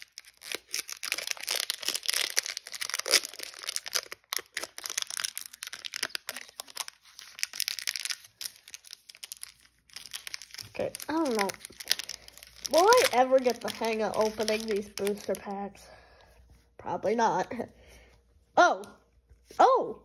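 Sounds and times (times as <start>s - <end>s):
foil wrapper crinkling and tearing: 0.0s - 15.7s.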